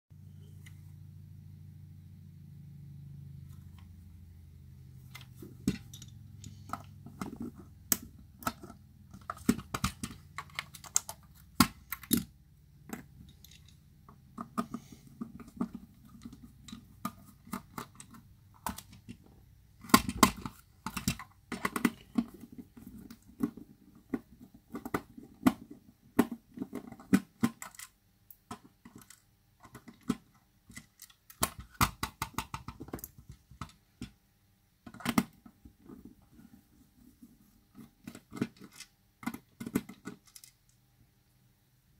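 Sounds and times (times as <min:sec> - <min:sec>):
plastic clicks and knocks: 0:05.1 - 0:34.2, 0:34.8 - 0:36.2, 0:37.8 - 0:40.7.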